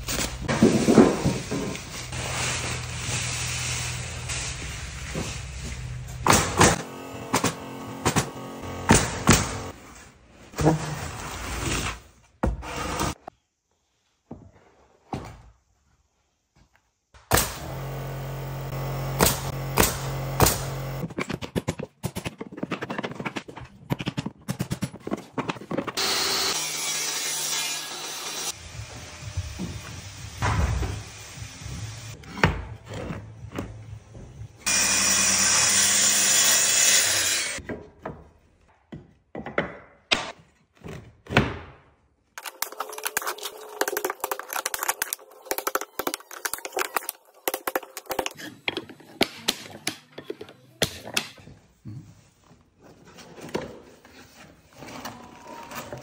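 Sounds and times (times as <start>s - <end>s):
track saw cutting wood: 6.6s - 9.7s, 17.4s - 21.0s, 26.0s - 29.1s, 34.7s - 37.6s.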